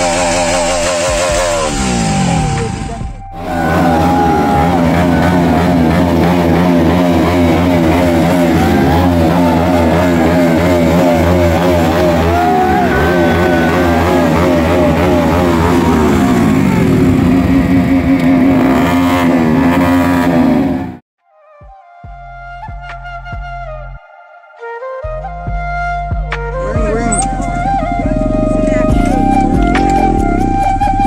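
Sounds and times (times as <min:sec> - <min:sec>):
music playing: 0:00.0 - 0:20.2, 0:21.3 - 0:31.0
motorcycle engine revving: 0:00.0 - 0:21.0, 0:26.7 - 0:31.0.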